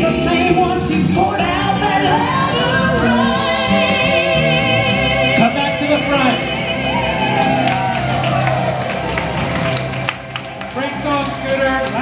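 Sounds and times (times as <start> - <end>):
country gospel polka song: 0.0 - 7.6
woman singing with vibrato: 1.5 - 5.5.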